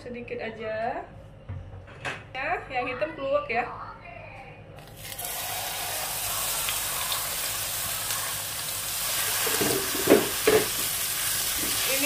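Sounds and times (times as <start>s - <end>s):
paste sizzling in hot oil: 5.0s - 12.0s.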